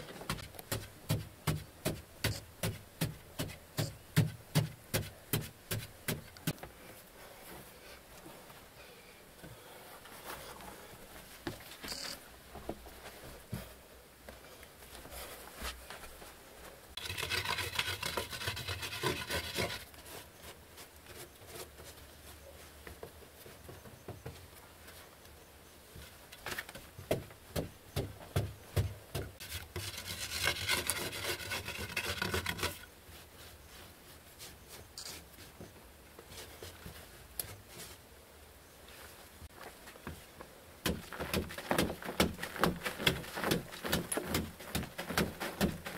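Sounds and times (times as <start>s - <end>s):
scraping on dried mud: 17.0s - 22.8s, 29.4s - 35.6s, 40.9s - 45.9s.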